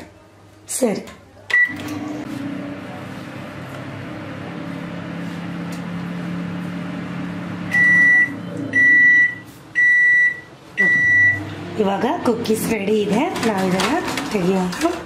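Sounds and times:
microwave oven humming: 0:01.5 - 0:15.0
high beeps: 0:07.7 - 0:11.4.

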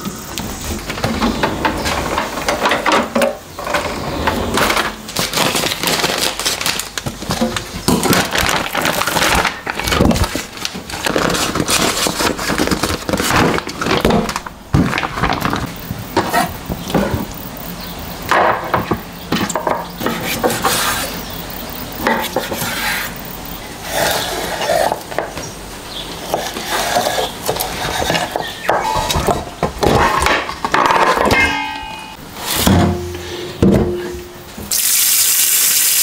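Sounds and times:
plastic crinkling: 0:05.0 - 0:16.9.

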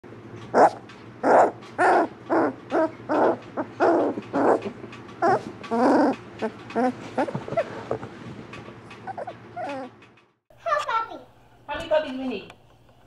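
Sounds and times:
puppies crying: 0:00.5 - 0:08.0, 0:08.9 - 0:10.2.

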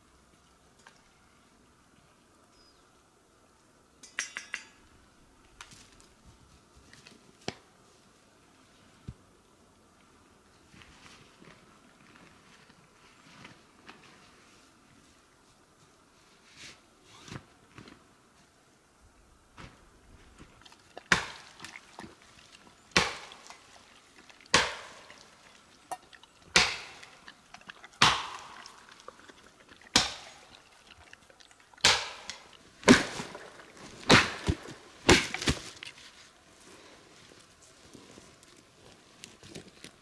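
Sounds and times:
axe chopping wood: 0:21.1 - 0:21.5, 0:23.0 - 0:23.4, 0:24.5 - 0:25.1, 0:26.6 - 0:27.0, 0:28.0 - 0:28.6, 0:30.0 - 0:30.3, 0:31.8 - 0:33.4, 0:34.0 - 0:35.8.

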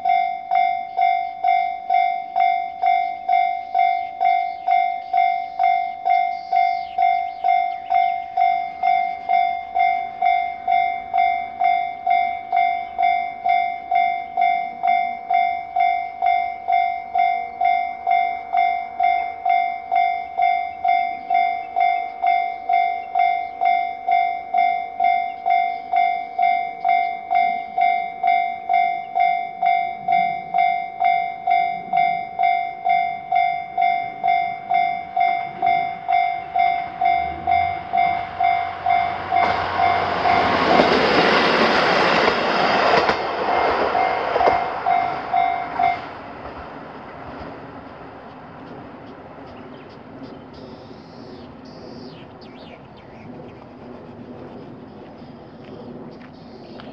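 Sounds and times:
level crossing bell ringing: 0:00.0 - 0:40.9, 0:44.0 - 0:46.2
train wheels on rails: 0:00.0 - 0:56.9.

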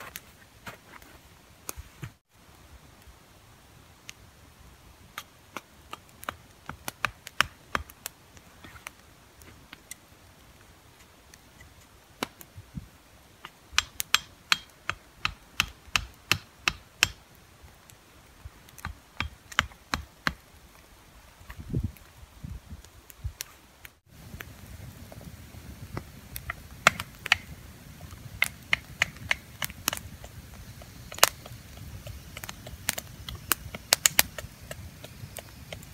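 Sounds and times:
hatchet chopping firewood: 0:05.1 - 0:08.1, 0:12.2 - 0:12.5, 0:13.4 - 0:17.3, 0:18.7 - 0:20.5, 0:25.9 - 0:35.9.

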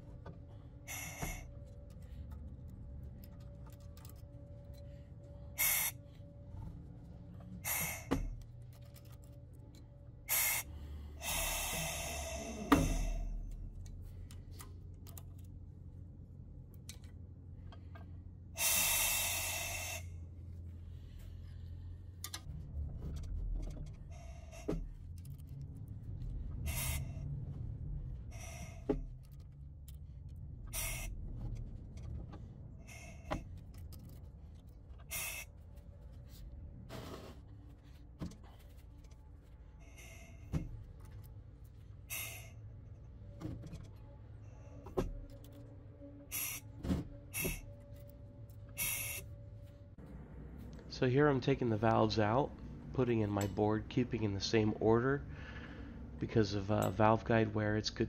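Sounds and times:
low steady hum: 0:00.0 - 0:58.0
short air hisses: 0:18.6 - 0:20.1.

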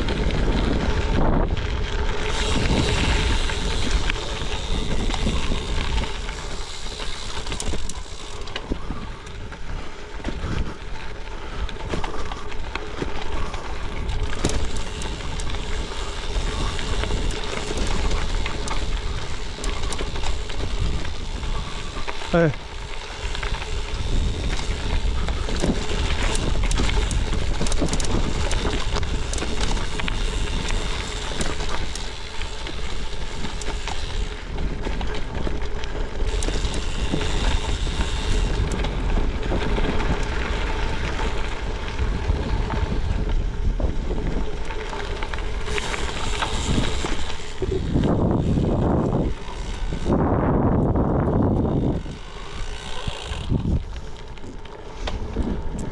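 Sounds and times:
bike rattling: 0:00.0 - 0:55.9
tyres crunching on gravel: 0:00.0 - 0:55.9
wind noise on microphone: 0:00.0 - 0:55.9.

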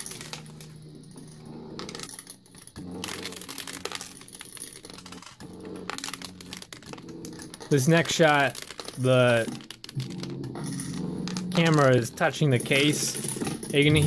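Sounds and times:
coins clinking and sliding: 0:00.0 - 0:14.0.

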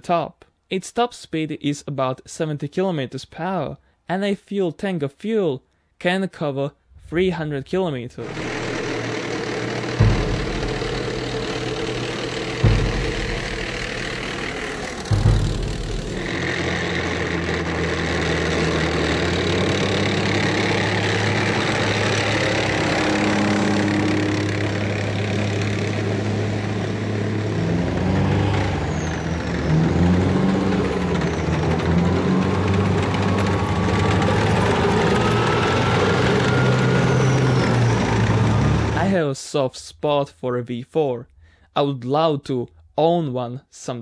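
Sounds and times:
tracked vehicle diesel engine: 0:08.2 - 0:39.2.

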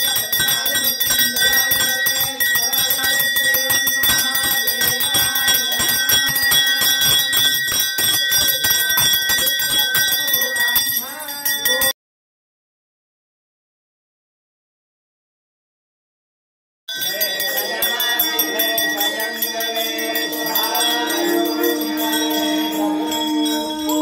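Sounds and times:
bell ringing rapidly: 0:00.0 - 0:11.9, 0:16.9 - 0:24.0.

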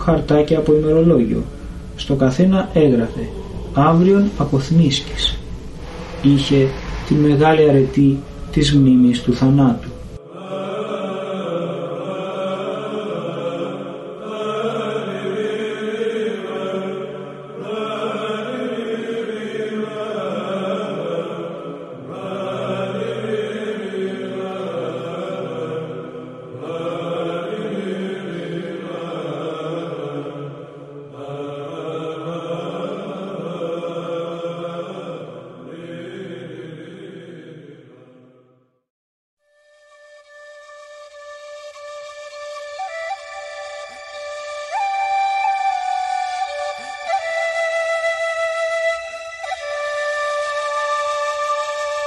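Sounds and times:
chant over a held drone: 0:00.0 - 0:38.5.

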